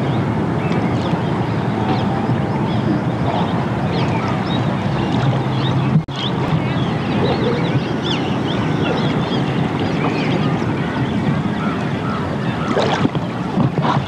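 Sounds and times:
birds chirping: 0:00.0 - 0:14.0
flowing river water: 0:00.0 - 0:14.0.

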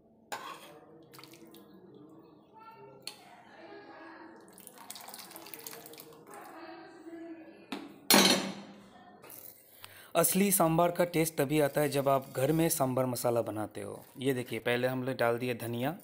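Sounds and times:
liquid splashing and dripping: 0:01.0 - 0:01.8, 0:04.4 - 0:06.4.

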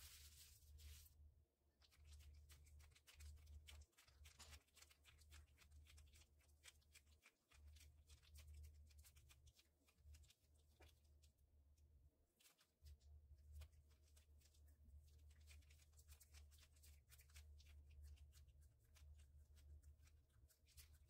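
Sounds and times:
plastic gloves crinkling on dough: 0:00.0 - 0:01.2.

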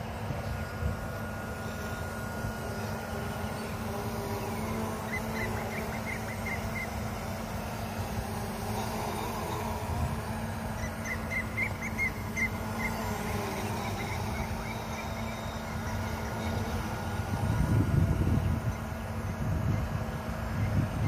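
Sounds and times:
quadcopter propellers buzzing: 0:00.0 - 0:21.0
wind rumbling on microphone: 0:17.1 - 0:21.0.

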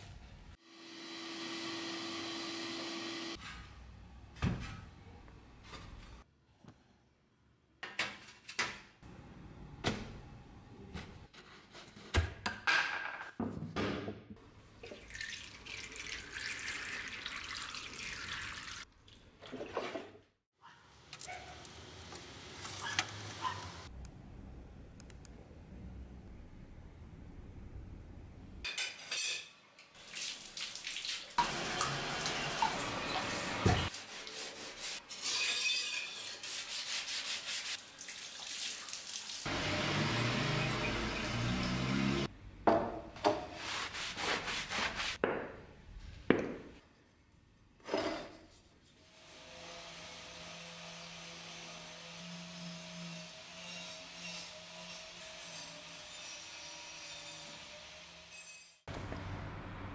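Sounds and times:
water: 0:14.7 - 0:20.3, 0:29.9 - 0:33.9, 0:37.8 - 0:39.5
angle grinder humming: 0:39.5 - 0:42.3.

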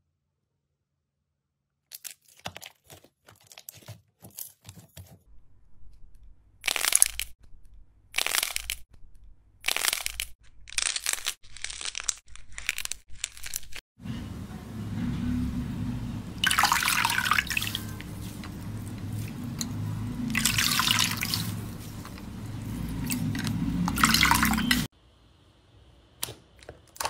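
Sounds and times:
water sloshing: 0:16.3 - 0:24.9.

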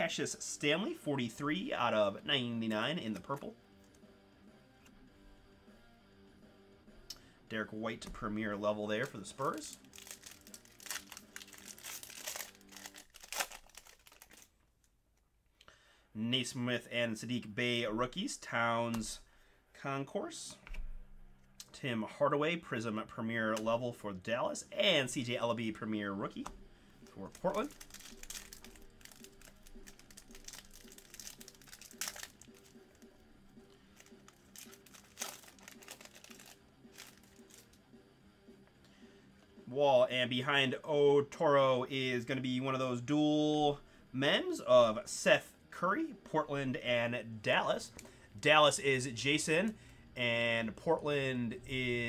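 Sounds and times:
foil wrapper crinkling and tearing: 0:09.0 - 0:14.9, 0:27.0 - 0:33.0, 0:34.0 - 0:37.8.

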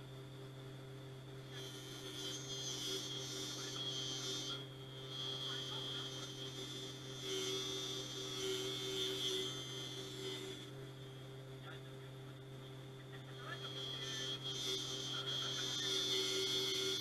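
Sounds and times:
deburring spindle hum and whine: 0:00.0 - 0:17.0.

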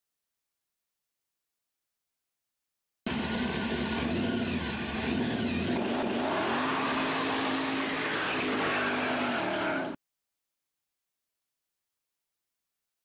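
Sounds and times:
car engine running: 0:03.1 - 0:09.9.

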